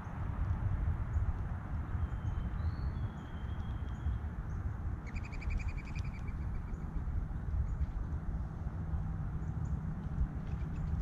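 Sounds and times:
steady low rumble: 0.0s - 11.0s
songbirds whistling and trilling: 1.1s - 8.0s.

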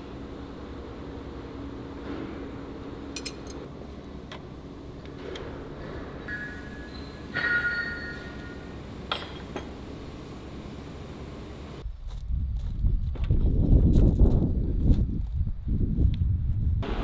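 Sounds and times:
low workshop hum: 0.0s - 17.0s
wrenches clinking on metal: 3.2s - 3.6s
ringing metallic clang: 6.3s - 9.7s.

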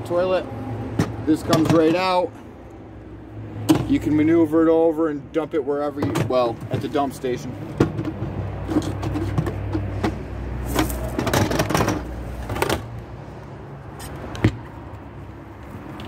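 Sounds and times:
plastic tank scraping and knocking: 5.9s - 12.9s.

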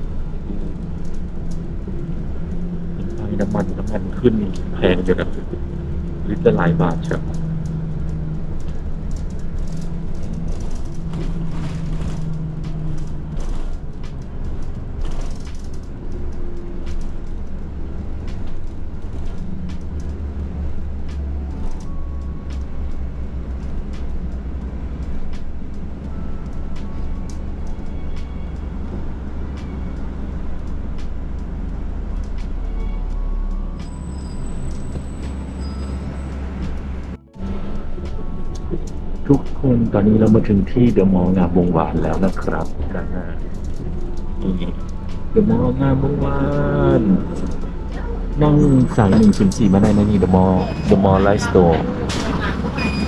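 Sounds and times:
bus body rattling and knocking: 0.0s - 32.6s, 47.2s - 53.0s
bus engine rumble: 0.0s - 53.0s.

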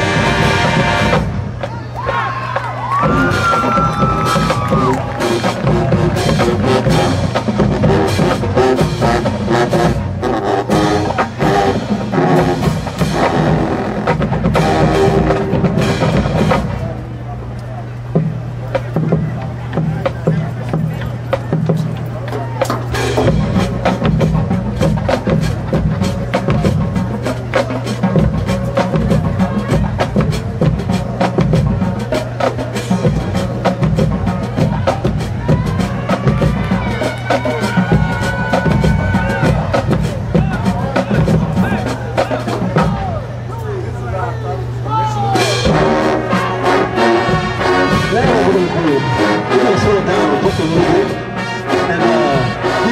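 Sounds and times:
low brass notes: 0.0s - 1.6s, 4.0s - 17.4s, 45.4s - 52.9s
drumline drum hits: 0.0s - 17.2s, 18.1s - 43.6s, 44.9s - 52.9s
marching band brass: 0.0s - 52.9s.

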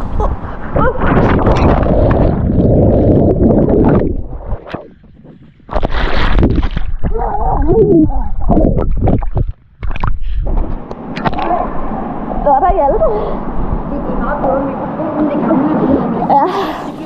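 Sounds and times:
underwater bubbles gurgling: 1.2s - 10.1s.

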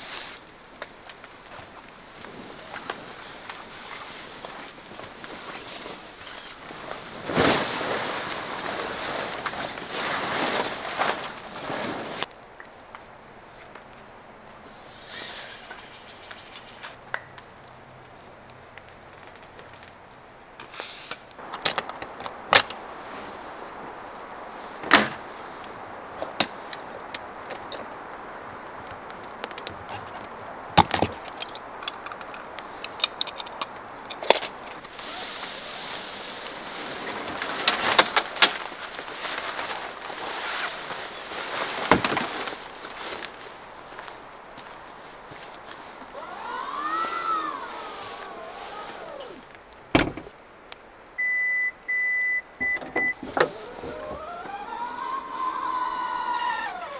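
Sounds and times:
fabric rustling: 1.5s - 12.3s, 31.1s - 50.4s.

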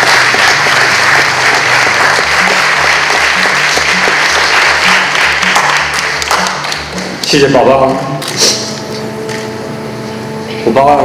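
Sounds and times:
audience applauding: 0.0s - 7.4s
music with low bass line: 0.0s - 11.0s.

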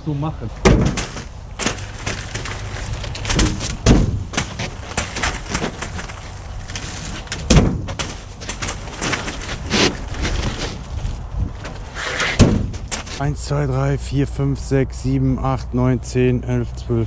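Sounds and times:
plastic rolls thudding on deck: 0.6s - 13.3s.

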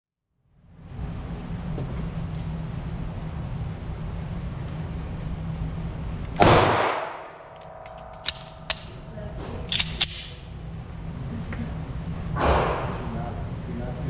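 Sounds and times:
pistol shot echoing: 6.4s - 7.4s
pistol clicks: 8.2s - 8.9s, 9.7s - 10.4s.

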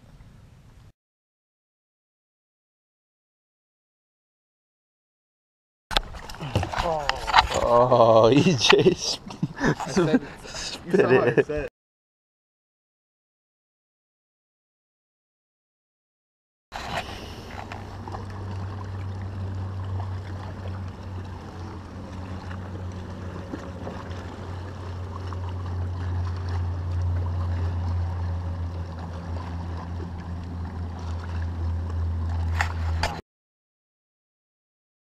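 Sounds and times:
boat motor humming: 5.9s - 11.7s, 16.8s - 33.2s
water lapping at hull: 5.9s - 11.7s, 16.8s - 33.2s.

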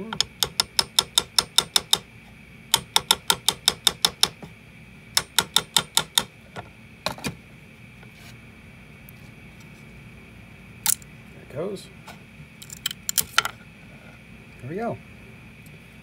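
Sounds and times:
hammer tapping metal scraper: 0.1s - 2.0s, 2.8s - 4.5s, 5.2s - 6.3s.

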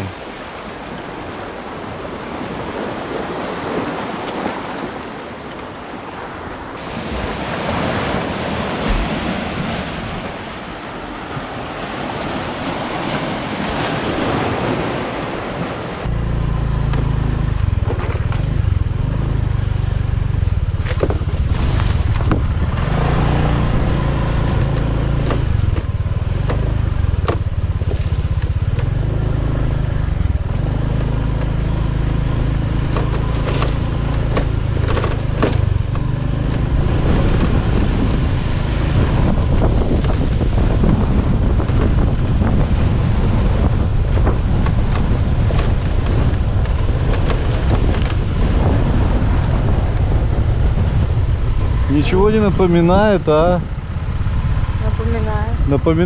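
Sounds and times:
surf on rocky shore: 0.0s - 16.1s, 17.1s - 56.0s
motorbike on dirt track: 6.1s - 56.0s
scattered knocks: 24.6s - 29.0s.

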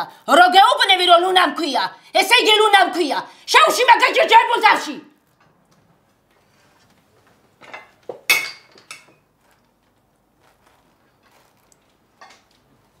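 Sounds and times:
cutlery clinking on plates: 7.6s - 9.3s.

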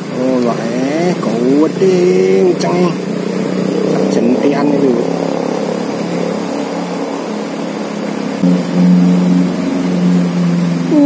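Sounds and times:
river flowing: 0.0s - 11.0s
vehicle engine humming: 0.0s - 11.0s.

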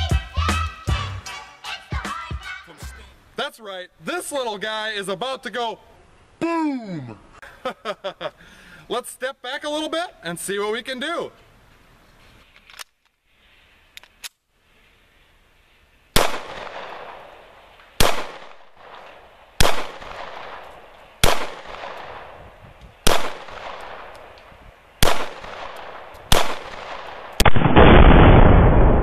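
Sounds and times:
pistol shots: 16.2s - 17.4s, 18.0s - 22.4s, 23.0s - 24.4s, 25.0s - 28.4s
exploding target blast: 26.3s - 29.0s.

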